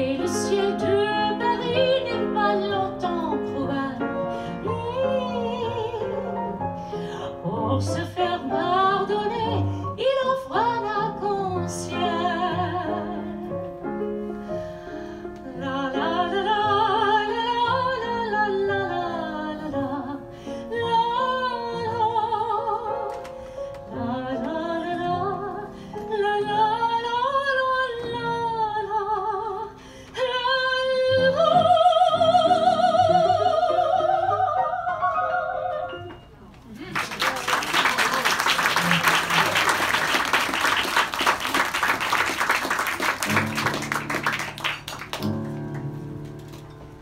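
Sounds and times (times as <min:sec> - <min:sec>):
woman singing with vibrato: 0:00.0 - 0:06.4, 0:07.3 - 0:13.4, 0:15.5 - 0:23.0, 0:23.9 - 0:36.2
piano accompaniment: 0:00.0 - 0:36.7, 0:38.0 - 0:47.0.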